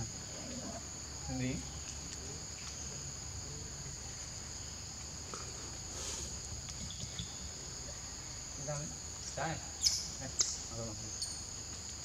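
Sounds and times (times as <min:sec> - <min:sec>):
insects droning: 0:00.0 - 0:12.0.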